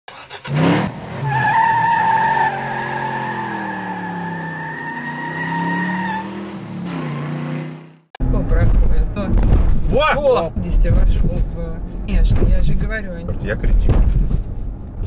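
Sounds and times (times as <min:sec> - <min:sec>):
car tyres squealing: 0:00.1 - 0:07.9
car engine: 0:00.1 - 0:15.0.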